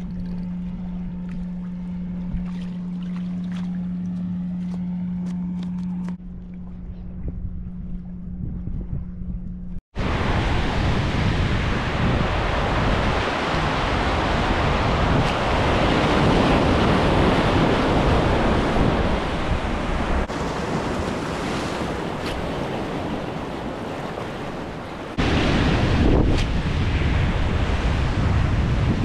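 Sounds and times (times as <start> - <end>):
wind buffeting microphone: 6.2 - 29.0
ocean surf: 10.0 - 29.0.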